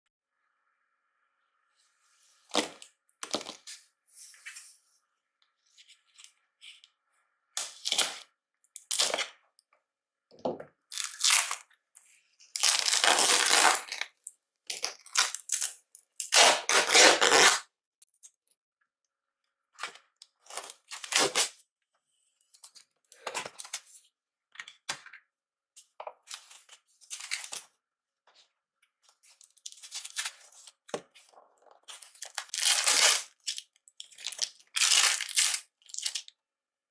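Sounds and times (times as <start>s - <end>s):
packing tape ripping: 12.6s - 14.0s, 14.8s - 17.6s, 21.0s - 21.6s, 32.2s - 33.6s, 34.2s - 36.3s.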